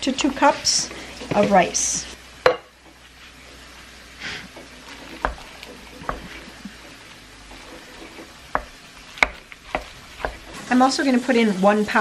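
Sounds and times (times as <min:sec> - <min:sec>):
spoon scraping rice: 0:04.8 - 0:10.6.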